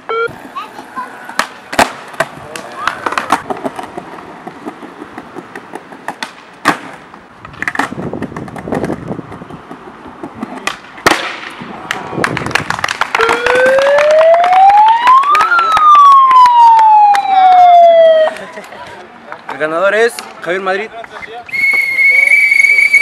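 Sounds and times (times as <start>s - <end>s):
voices: 0.3s - 3.5s, 17.2s - 23.0s
skateboard wheels rumbling: 0.3s - 14.6s
skateboards clacking on paving: 0.3s - 16.0s, 18.2s - 23.0s.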